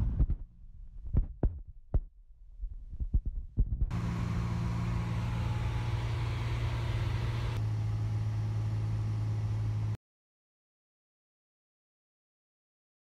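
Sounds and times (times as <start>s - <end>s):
airplane engine and propeller drone: 3.9s - 10.0s.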